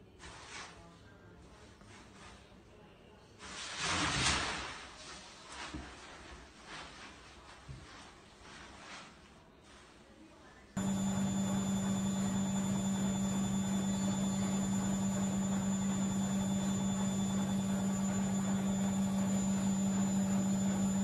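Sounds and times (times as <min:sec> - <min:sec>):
laundry machine humming: 0:10.8 - 0:21.0.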